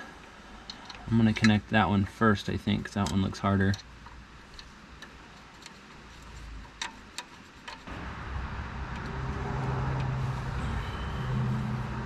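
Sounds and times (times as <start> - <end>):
metal ticks and clicks: 0.2 - 1.7, 2.8 - 5.8
steady low rumble: 7.9 - 12.0.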